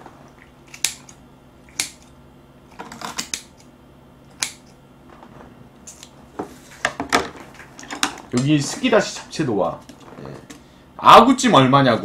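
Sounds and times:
scissors snipping: 0.7s - 2.1s, 4.3s - 4.8s.

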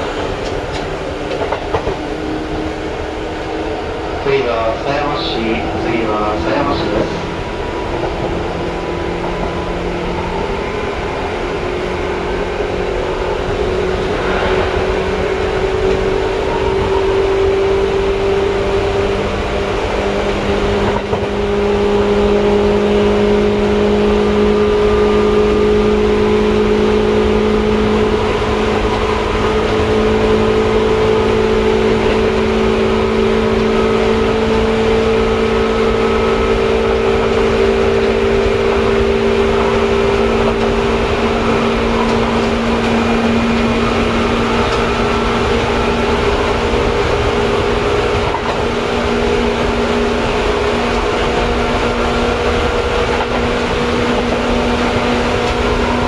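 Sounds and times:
electric train motor hum: 0.0s - 56.0s
wheel and rail rumble: 0.0s - 56.0s.

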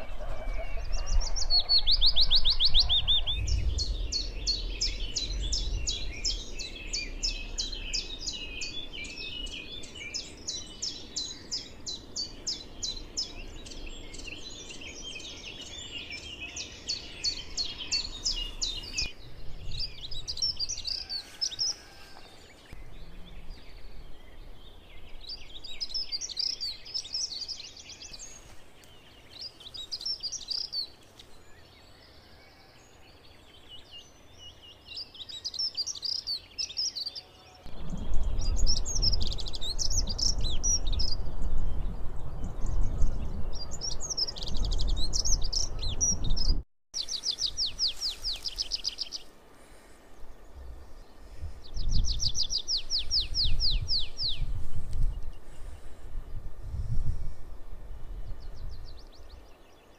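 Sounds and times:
low rumble: 0.0s - 9.8s, 37.7s - 43.7s
small birds chirping: 0.0s - 59.9s.

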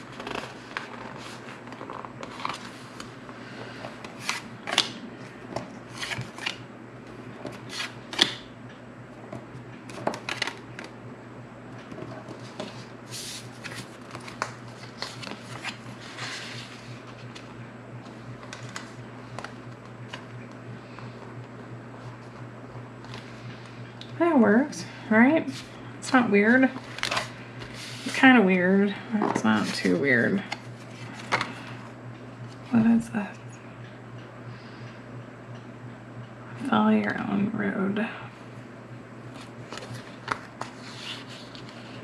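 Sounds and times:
plastic pages crinkling and rustling: 0.0s - 5.0s, 9.9s - 10.9s, 11.9s - 17.5s, 18.1s - 20.3s, 26.7s - 28.2s, 39.3s - 42.0s.

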